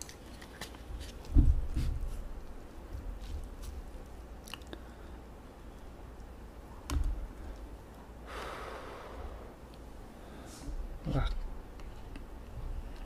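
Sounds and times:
quiet chewing: 4.4 - 4.9
breath blowing on food: 8.3 - 9.7.

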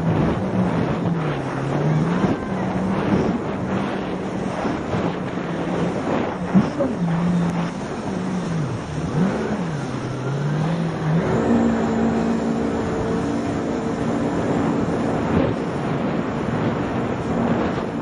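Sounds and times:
jet ski engine running: 0.0 - 18.0
water rushing: 0.0 - 18.0.

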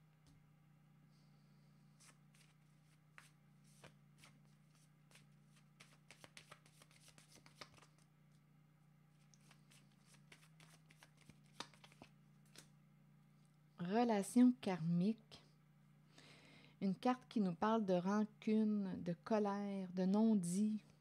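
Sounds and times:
faint steady hum: 0.0 - 21.0
cards being shuffled: 2.0 - 8.4, 9.2 - 12.7.

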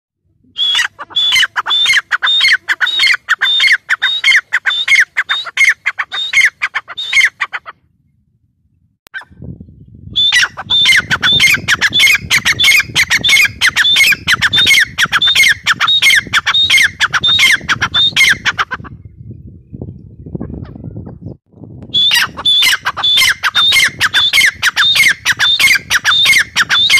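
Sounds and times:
francolin calling: 0.6 - 7.7, 10.2 - 18.8, 22.0 - 26.9.

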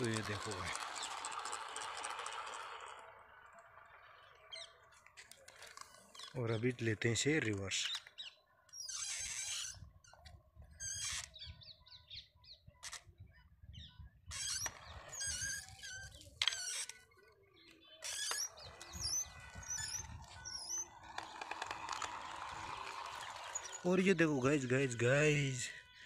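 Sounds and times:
clicks and scrapes on concrete: 0.0 - 3.6, 4.4 - 6.4, 14.3 - 17.2, 18.0 - 23.9
birds chirping: 0.0 - 26.0.

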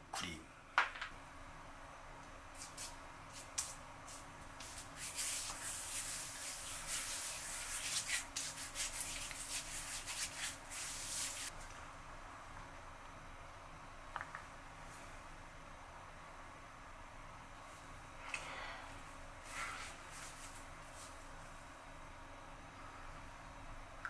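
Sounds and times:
hands rubbing beard stubble: 2.6 - 11.5.

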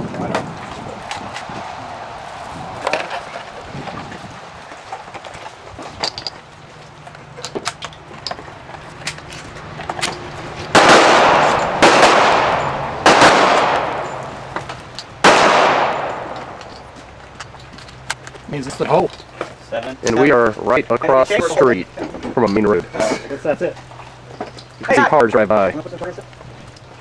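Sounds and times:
loud gunshots with echo: 10.7 - 14.6, 15.2 - 16.6.

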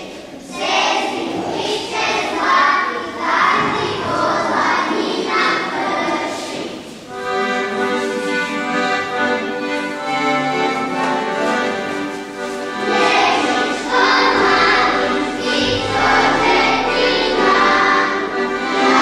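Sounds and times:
children's choir singing: 0.0 - 19.0.

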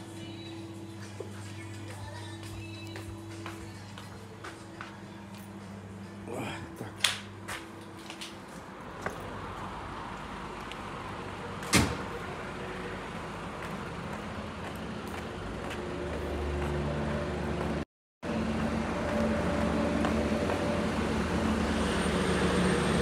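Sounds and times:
diesel truck engine running: 5.6 - 23.0.

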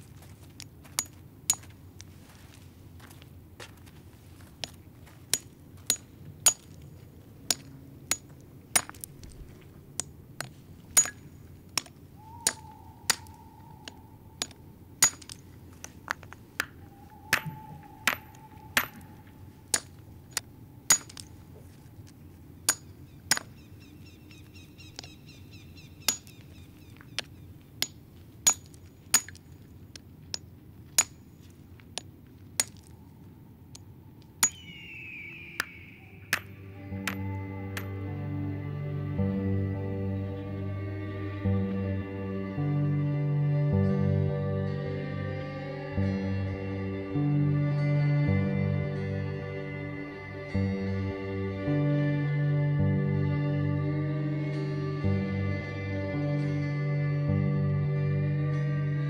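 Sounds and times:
hammer striking stone chips: 5.3 - 9.2, 10.0 - 21.4, 22.7 - 23.6, 26.0 - 26.4, 27.2 - 29.6, 30.3 - 32.9, 35.6 - 38.0.

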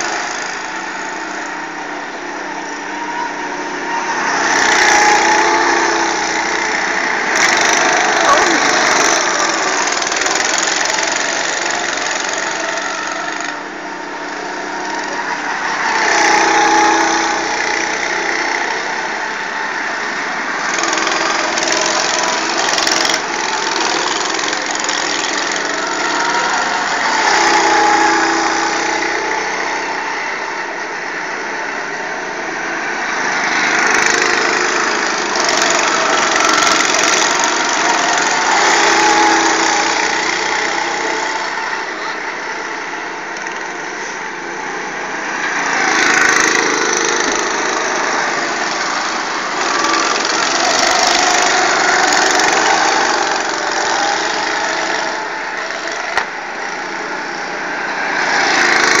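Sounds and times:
go-kart engines passing: 0.0 - 59.0.

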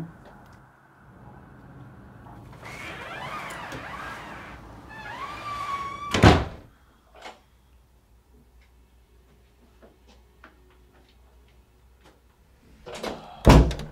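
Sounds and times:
door creaking: 2.4 - 6.7
door shutting with heavy thunk: 6.0 - 6.6.

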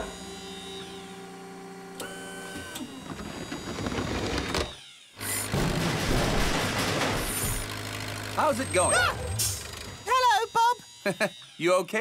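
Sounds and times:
winch motor whining: 0.0 - 5.6, 7.2 - 12.0.

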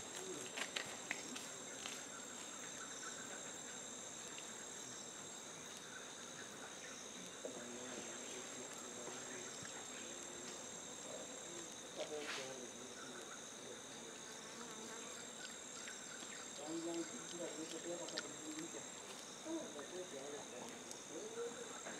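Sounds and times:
forest insects droning: 0.0 - 21.9.

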